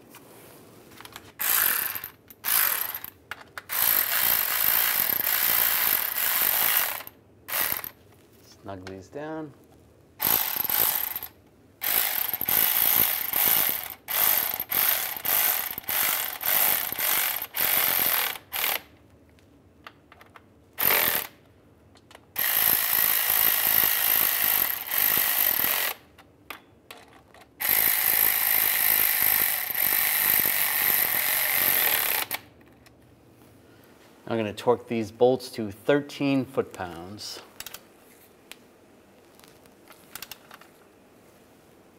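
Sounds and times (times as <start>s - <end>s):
cordless electric ratchet: 1.1s - 8.0s, 10.2s - 18.9s, 20.8s - 21.4s, 22.4s - 26.1s, 27.6s - 32.5s.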